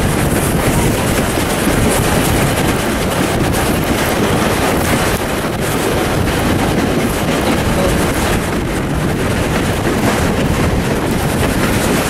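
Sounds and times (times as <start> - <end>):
steam train running: 0.0 - 12.0
wind rushing over microphone: 0.0 - 12.0.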